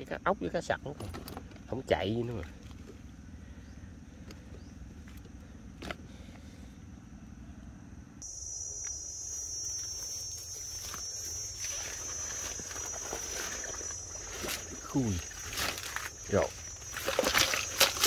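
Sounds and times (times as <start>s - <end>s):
high-pitched insect buzz: 8.2s - 18.0s
small motor hum: 8.2s - 18.0s.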